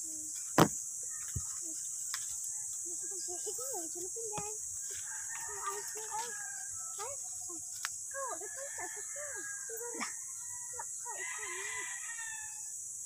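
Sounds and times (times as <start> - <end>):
high insect drone: 0.0 - 13.0
rooster crowing: 4.9 - 7.3, 8.2 - 12.7.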